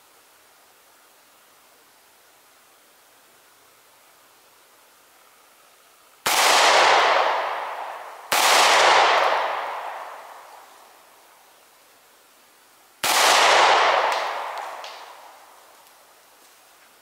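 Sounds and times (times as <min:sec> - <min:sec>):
pistol shots: 0:06.3 - 0:10.6, 0:13.0 - 0:15.4.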